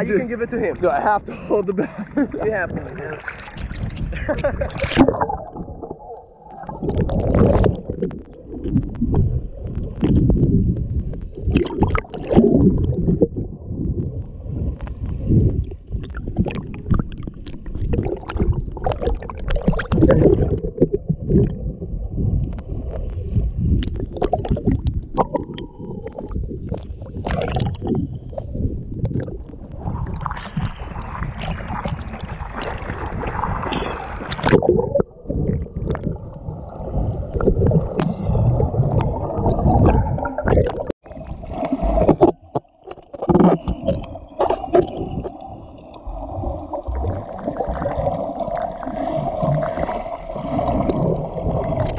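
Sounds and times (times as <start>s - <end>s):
seawater sloshing and splashing: 2.4s - 13.4s, 22.5s - 51.9s.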